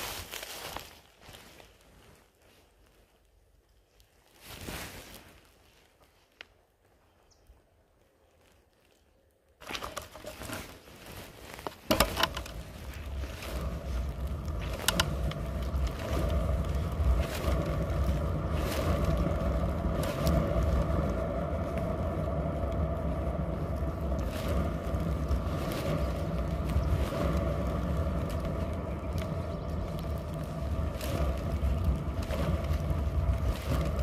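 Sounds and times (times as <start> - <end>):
scooter wheels rolling on asphalt: 7.9 - 34.0.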